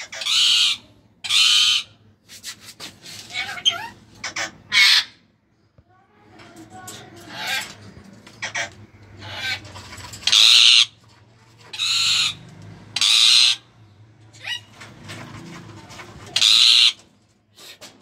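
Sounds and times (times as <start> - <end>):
parakeet chattering calls: 0.0 - 1.9, 10.2 - 11.0, 11.7 - 12.4, 13.0 - 13.7, 16.4 - 17.0
parakeet harsh screeches: 0.0 - 2.0, 3.2 - 5.2, 10.2 - 11.0, 11.7 - 12.4, 13.0 - 13.6, 16.4 - 17.0.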